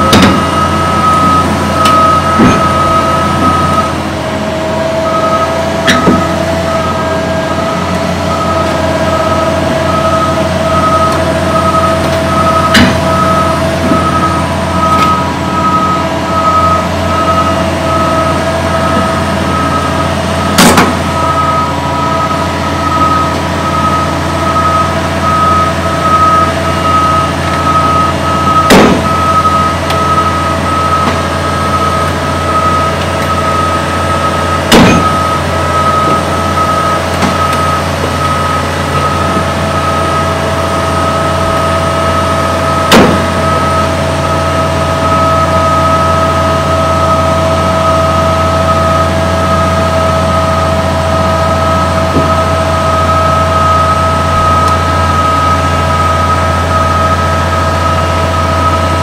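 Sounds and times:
truck diesel engine running: 0.0s - 59.0s
warning beeper pulsing: 0.0s - 59.0s
sharp clunks: 0.1s - 0.4s, 5.9s - 6.3s, 12.0s - 13.1s, 20.6s - 21.0s, 28.7s - 29.1s, 34.7s - 35.2s, 42.9s - 43.3s.

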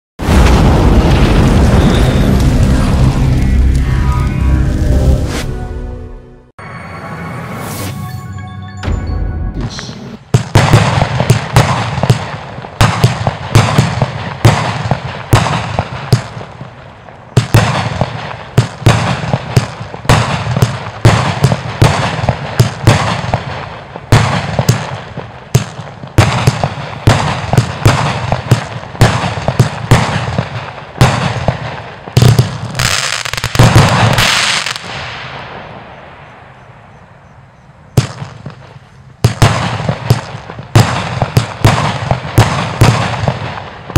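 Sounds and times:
fireworks firing shots: 0.2s - 3.9s, 9.7s - 37.0s, 37.9s - 43.9s
fireworks crackle and hiss: 0.2s - 5.4s, 9.8s - 36.2s.

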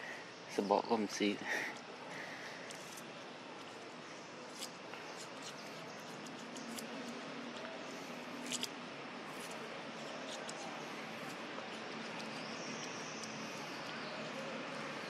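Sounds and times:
steady outdoor hiss: 0.0s - 15.0s
monkey crunching hard fruit: 4.5s - 7.6s, 8.4s - 14.0s.

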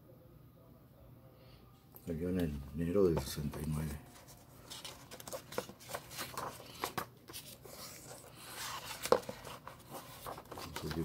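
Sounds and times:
paper and card rustling: 2.4s - 11.0s.

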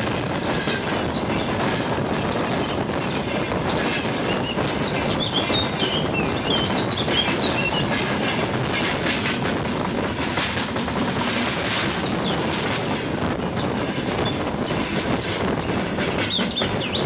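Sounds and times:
freight train rumbling: 0.0s - 17.0s
high squeaks: 11.8s - 13.9s.

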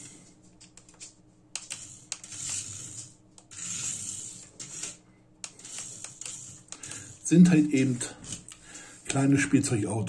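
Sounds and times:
small electric motor whirring: 1.7s - 7.2s.

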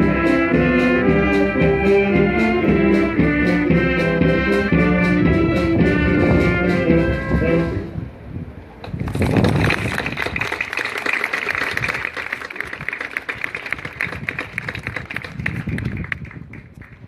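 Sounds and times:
crowd applauding: 9.0s - 17.0s.

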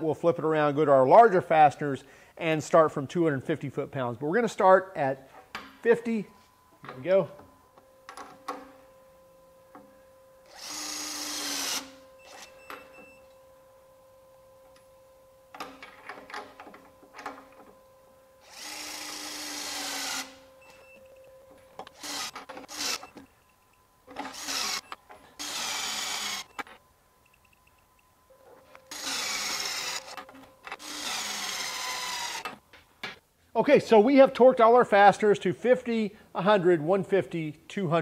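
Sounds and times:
torque gun motor whine: 10.4s - 13.1s, 18.4s - 20.9s, 21.9s - 23.2s, 24.2s - 26.7s, 28.8s - 32.6s.

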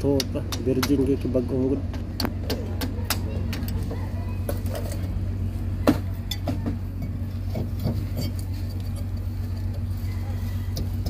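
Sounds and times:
steady low hum: 0.0s - 11.0s
metal clinks and knocks: 6.2s - 9.8s.

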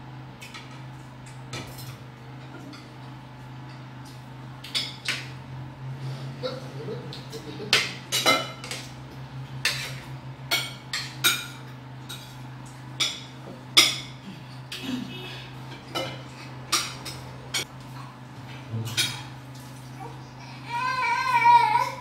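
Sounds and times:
low steady hum: 0.0s - 22.0s
cutlery clinking on plates: 7.7s - 8.9s.

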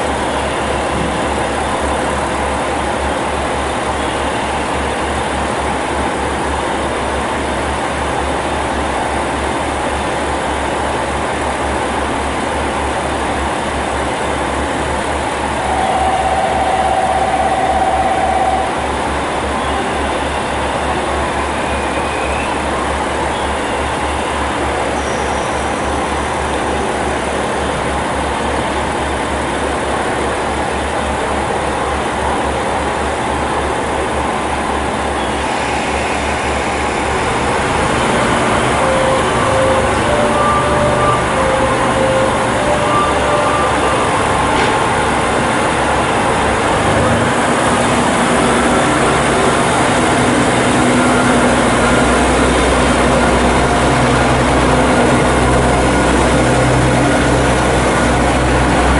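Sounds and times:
diesel railcar engine: 0.0s - 58.9s
brief high tones: 15.6s - 20.0s, 37.8s - 46.1s.

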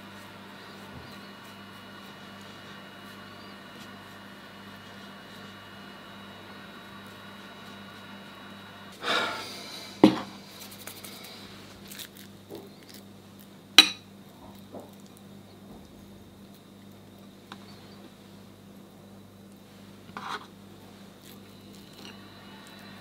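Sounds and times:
brush scraping on board: 0.0s - 5.6s, 10.2s - 12.3s, 20.1s - 20.5s
faint steady hum: 0.0s - 23.0s
glass bowl clinking: 13.8s - 14.1s.

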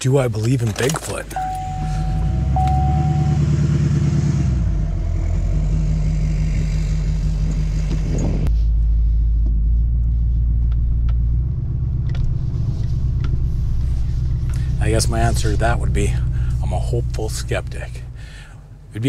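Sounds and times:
truck engine drone: 0.0s - 19.0s
road noise hiss: 12.3s - 17.0s.

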